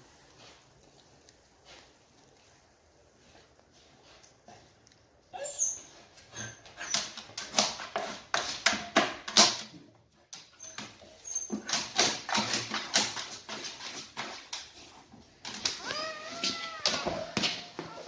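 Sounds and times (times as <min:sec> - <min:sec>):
dog whimpering: 0:15.8 - 0:18.0.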